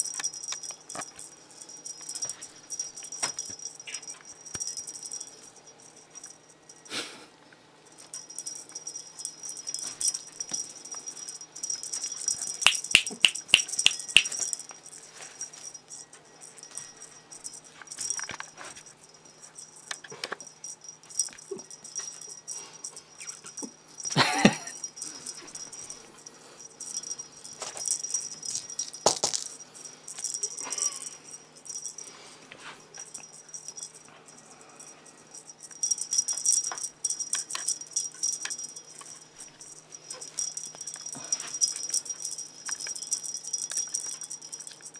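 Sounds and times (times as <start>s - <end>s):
small bell jingling: 0.0s - 7.0s, 7.8s - 44.9s.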